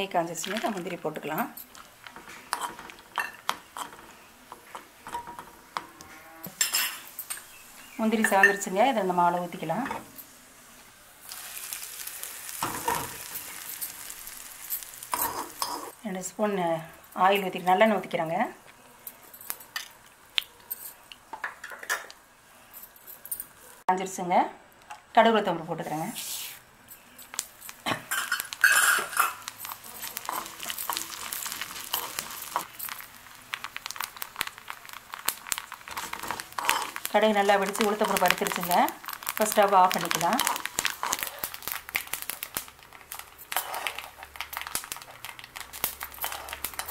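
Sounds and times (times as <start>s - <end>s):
hot ghee sizzling: 0.0s - 22.7s, 25.4s - 46.9s
steel spoon scraping a pan: 1.3s - 7.5s, 12.5s - 16.0s, 26.9s - 33.0s, 35.9s - 38.8s, 43.1s - 44.2s, 46.0s - 46.9s.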